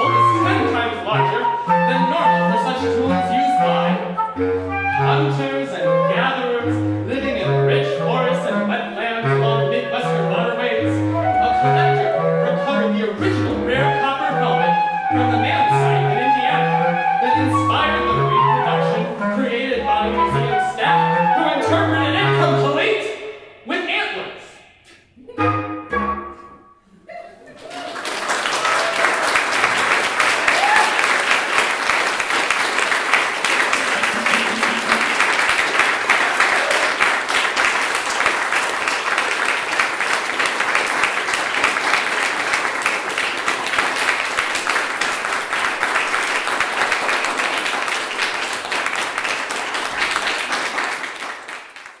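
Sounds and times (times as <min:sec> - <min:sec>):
audience clapping: 0:27.5 - 0:52.0.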